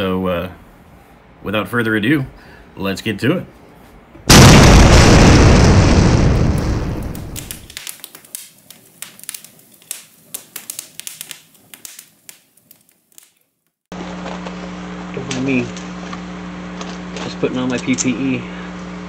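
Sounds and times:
explosion rumble: 4.3 - 7.8
sparks crackling and popping: 4.3 - 18.1.

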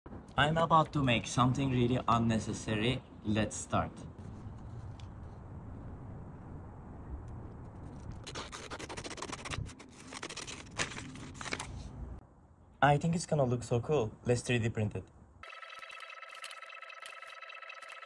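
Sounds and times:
paper rustling: 7.9 - 11.9
pen scratching on paper: 8.2 - 10.4
scissors cutting paper: 8.2 - 11.6.

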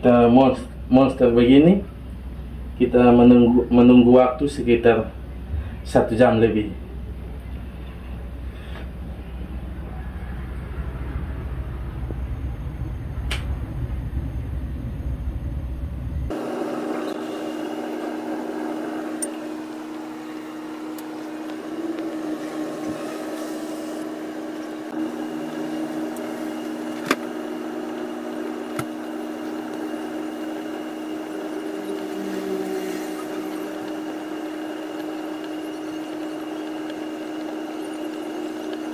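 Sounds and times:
gas burner noise: 0.0 - 38.9
water boiling and bubbling: 16.3 - 38.9.

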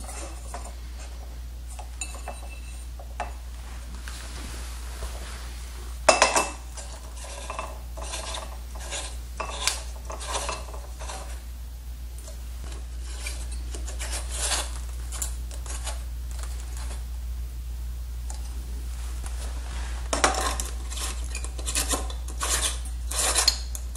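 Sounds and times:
scraping and rubbing of lamp shade: 0.0 - 11.5, 12.6 - 17.1, 18.9 - 23.8
steady low hum: 0.0 - 23.9.

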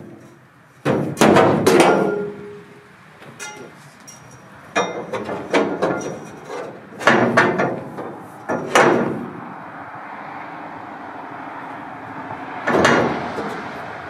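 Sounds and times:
pole knocking on metal truck bed: 0.8 - 2.3, 7.0 - 9.3, 12.7 - 13.6.

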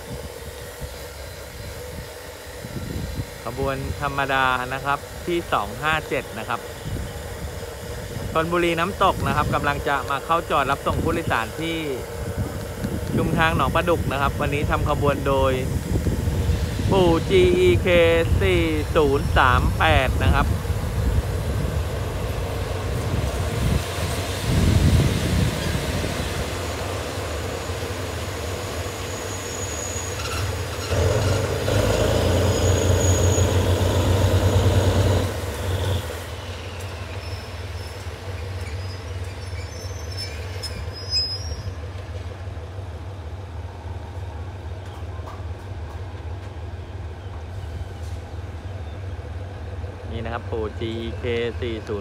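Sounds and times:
diesel locomotive engine humming: 0.0 - 52.0
passenger coaches rolling by: 0.0 - 52.0
wheel or brake squeal: 28.9 - 41.9.

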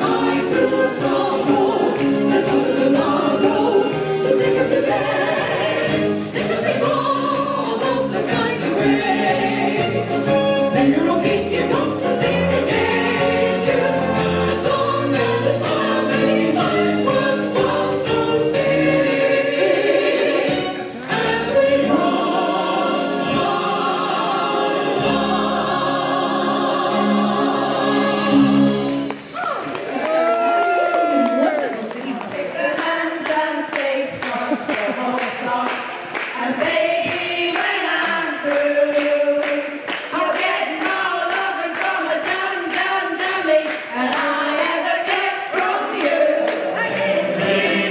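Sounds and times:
female vocal trio singing harmony: 0.0 - 29.1, 32.1 - 47.9
musical accompaniment with bass line: 0.0 - 29.4.

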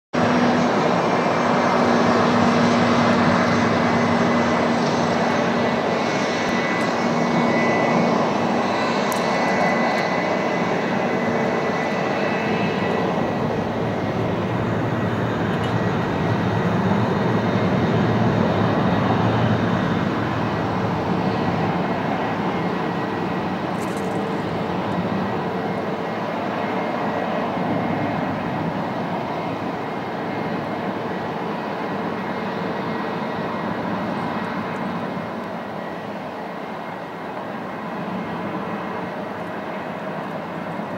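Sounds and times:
jet engines running: 0.2 - 40.9.

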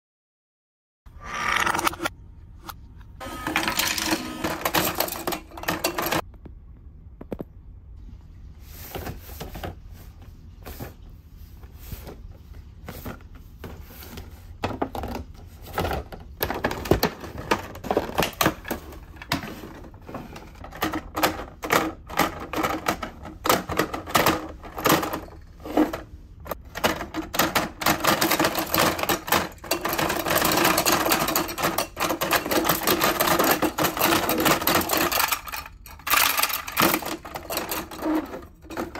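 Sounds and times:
rapid plastic toy clatter: 3.4 - 6.2, 14.6 - 38.9
plastic toys clicking and knocking: 3.4 - 6.3, 12.9 - 38.9.

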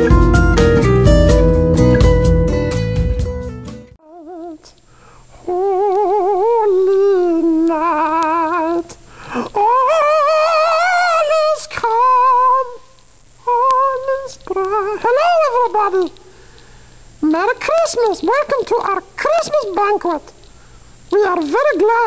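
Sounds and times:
person humming with vibrato: 5.4 - 8.8.

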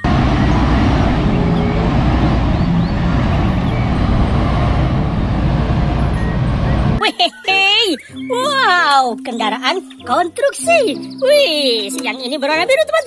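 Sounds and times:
diesel engine rumbling: 0.0 - 7.0.

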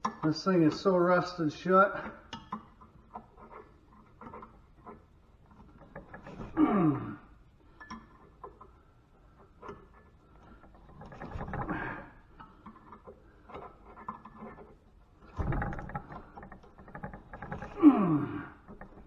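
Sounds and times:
person grunting: 6.6 - 7.2, 17.8 - 18.6
metal clatter: 7.7 - 19.0.

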